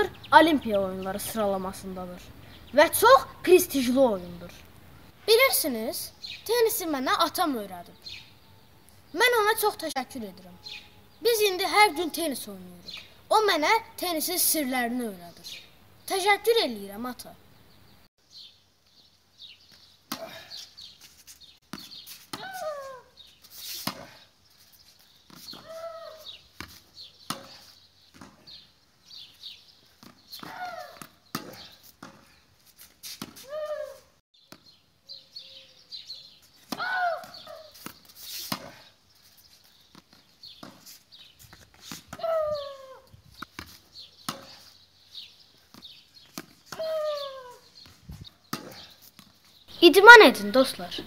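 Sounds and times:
ball bouncing on stone paving: 19.6s - 20.5s, 21.6s - 24.2s, 25.0s - 32.4s, 34.4s - 34.8s, 36.6s - 38.9s, 39.6s - 49.8s
racket hitting tennis ball: 21.7s - 24.2s, 25.3s - 28.6s, 30.0s - 32.4s, 33.0s - 34.7s, 36.6s - 38.8s, 39.9s - 44.7s, 45.7s - 47.5s, 48.4s - 49.3s.

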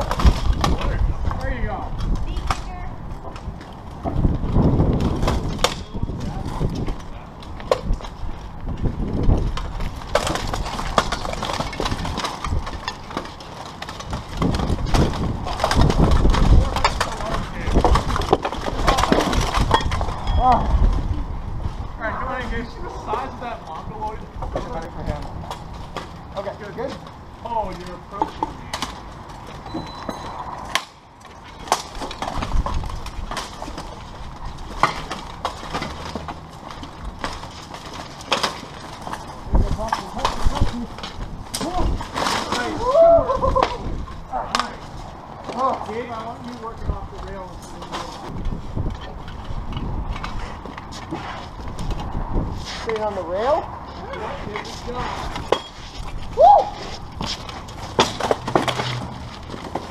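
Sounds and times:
armour and weapons clanking: 9.2s - 20.8s, 23.1s - 42.9s, 54.1s - 59.9s.

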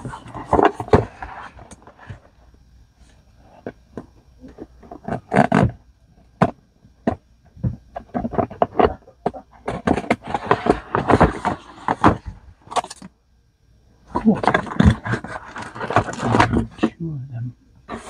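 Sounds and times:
cardboard and paper rustling: 0.0s - 2.4s, 7.6s - 12.9s, 14.1s - 16.9s.

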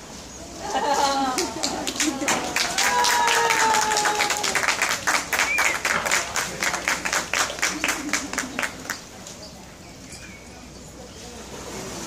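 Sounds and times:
spectators clapping: 1.2s - 9.1s.

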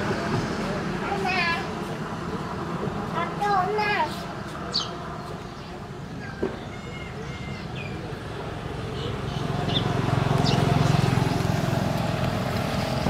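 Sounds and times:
bird chirps: 4.7s - 5.0s
vehicle engine passing by: 7.6s - 13.0s.

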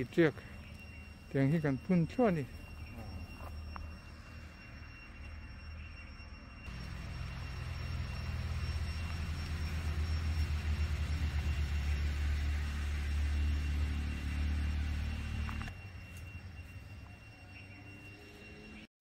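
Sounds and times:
cicadas buzzing: 0.0s - 18.9s
throbbing engine rumble: 6.7s - 16.8s.

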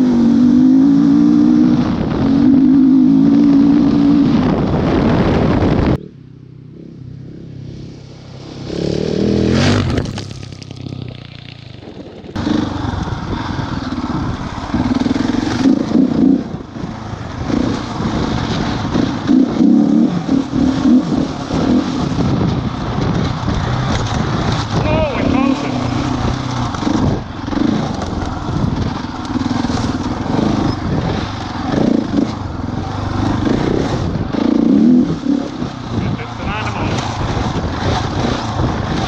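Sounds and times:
motorcycle engine revving: 0.0s - 39.0s.

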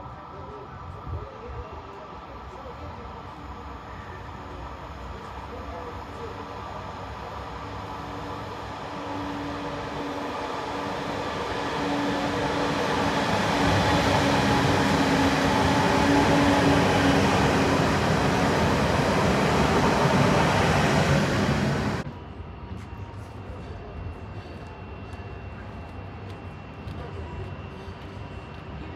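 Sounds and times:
electric train hum: 0.0s - 28.9s
train wheels rumbling on rails: 2.5s - 22.1s.

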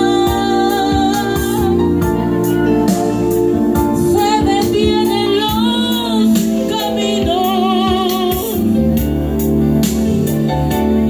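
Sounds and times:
woman singing with vibrato: 0.0s - 2.5s, 4.0s - 8.8s
instrumental backing music: 0.0s - 11.0s.

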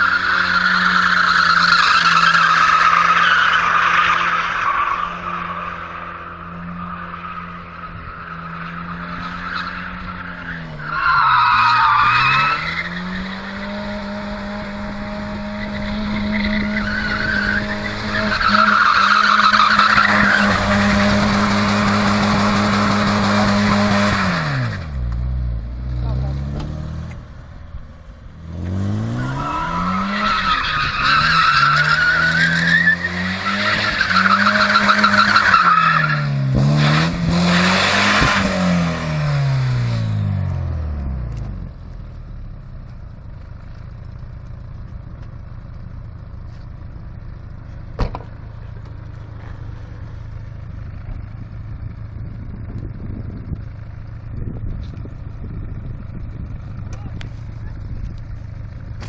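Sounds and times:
car engine revving: 0.0s - 59.0s
car engine idling: 38.9s - 59.0s.

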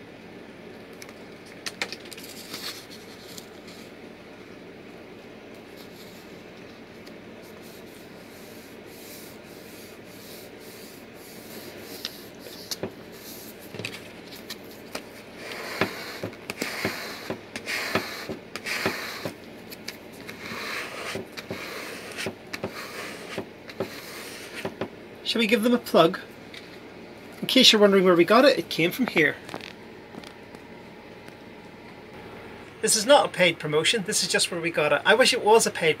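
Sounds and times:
squeegee scraping over decal: 7.5s - 19.4s, 20.1s - 24.8s.

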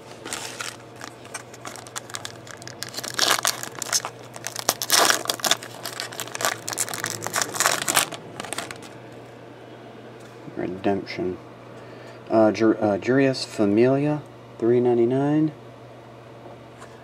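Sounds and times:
foil pack crackling and tearing: 0.0s - 9.0s.

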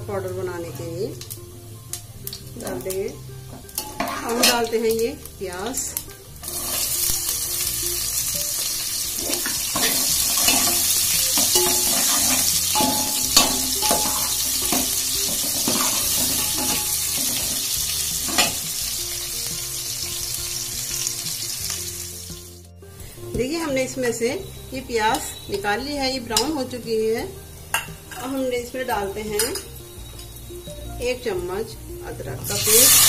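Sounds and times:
onions sizzling in oil: 0.0s - 33.0s
ladle scraping and knocking pot: 9.2s - 17.7s.

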